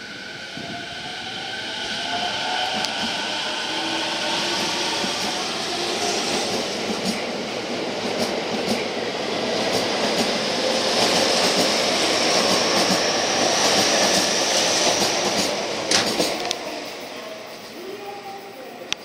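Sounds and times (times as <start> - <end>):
electric train high whine: 0.0 - 19.0
train wheels clacking over rail joints: 12.4 - 16.6.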